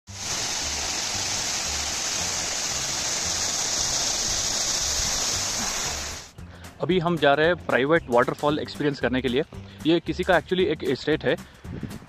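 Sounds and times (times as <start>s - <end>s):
waterfall roaring: 0.1s - 6.3s.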